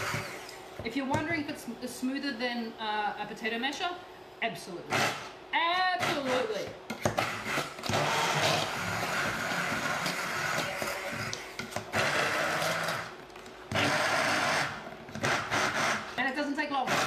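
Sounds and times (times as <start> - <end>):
stick blender motor: 0.0 - 0.6, 6.0 - 13.1, 13.7 - 16.1, 16.8 - 17.0.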